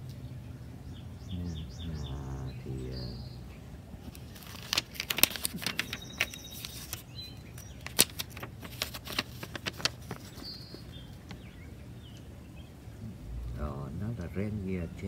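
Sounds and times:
faint bird chirp: 0.0 - 15.0
crackling handling noise: 3.9 - 12.3.

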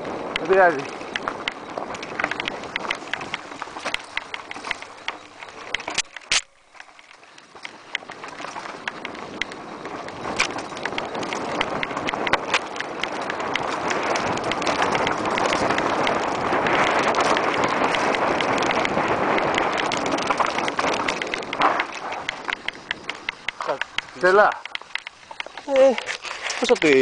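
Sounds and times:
bike rattling over rocks: 0.0 - 27.0
tyres on loose gravel: 0.0 - 27.0
wind on microphone: 0.0 - 27.0.

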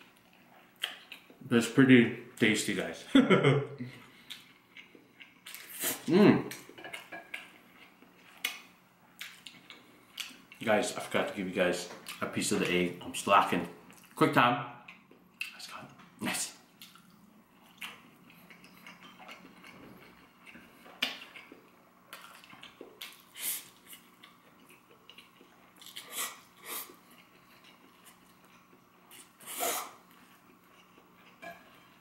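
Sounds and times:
chewing sounds: 4.1 - 10.6, 16.6 - 31.9
person slurping noodles: 29.4 - 30.0.

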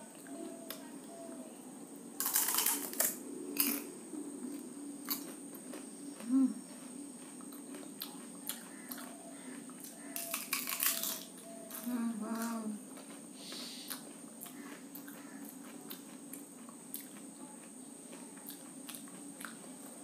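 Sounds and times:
crisp shells cracking and crunching: 2.2 - 3.9, 9.9 - 12.6.

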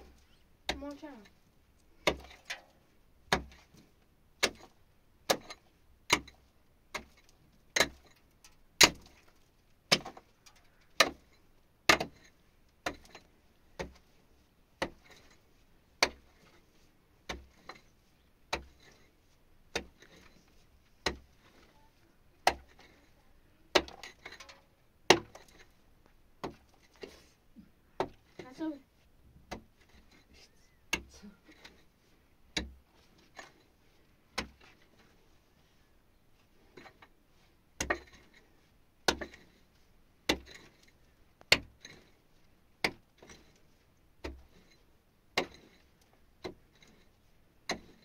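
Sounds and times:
pickaxe striking rock: 2.0 - 2.6, 3.3 - 3.6, 4.4 - 4.7, 5.3 - 7.1, 9.9 - 10.2, 11.0 - 11.3, 11.9 - 12.2, 21.0 - 21.2, 23.7 - 24.4, 25.1 - 25.6, 37.8 - 38.2, 39.1 - 39.4, 40.3 - 40.7.

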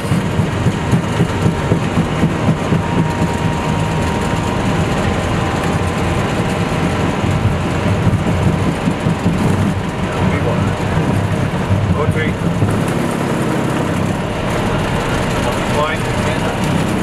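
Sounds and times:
jet engines rumbling: 0.0 - 17.0
landing gear on runway: 0.0 - 17.0.

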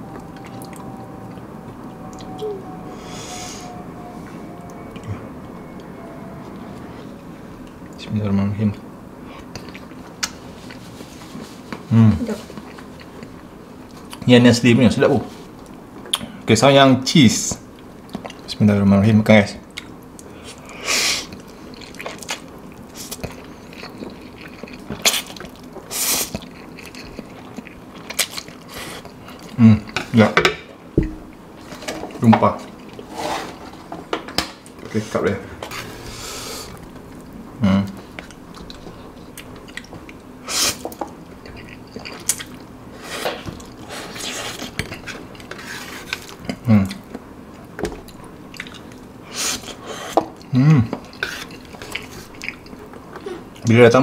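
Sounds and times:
wet chewing and mouth sounds: 9.4 - 14.2, 19.7 - 30.1, 38.0 - 53.7.

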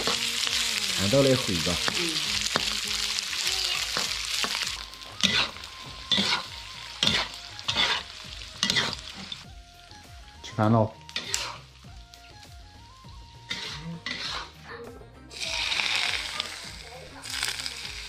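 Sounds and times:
meat sizzling in a wok: 0.0 - 14.6, 15.3 - 18.0
metal spatula scraping wok: 4.0 - 9.5, 10.4 - 11.8, 13.4 - 14.7.

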